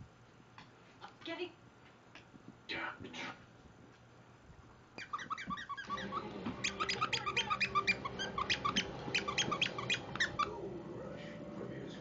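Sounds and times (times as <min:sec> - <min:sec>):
dogs squeaking while playing: 0:05.0 - 0:10.6.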